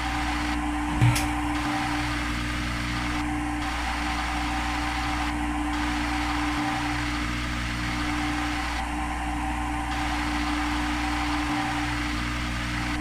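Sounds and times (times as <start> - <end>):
simulated machine spindle hum: 0.0 - 13.0.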